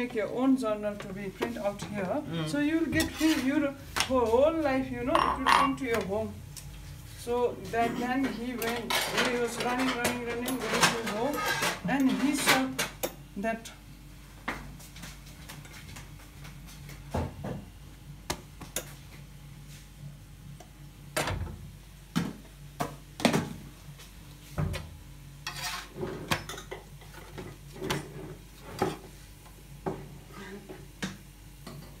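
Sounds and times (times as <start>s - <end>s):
metal utensils clinking: 5.2s - 5.8s.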